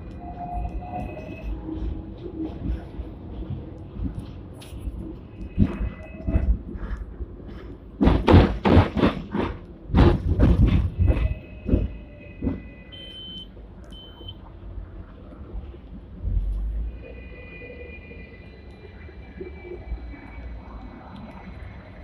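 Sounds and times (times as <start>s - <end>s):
tram running rumble: 0.0s - 22.0s
knocks and clatters: 5.5s - 12.8s.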